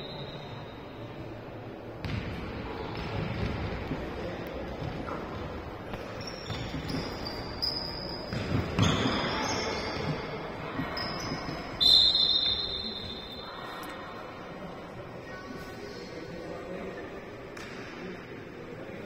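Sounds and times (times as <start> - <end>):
hum of players and spectators: 0.0 - 19.0
ball bouncing: 2.0 - 11.8
shoes squeaking on floor: 6.0 - 13.5.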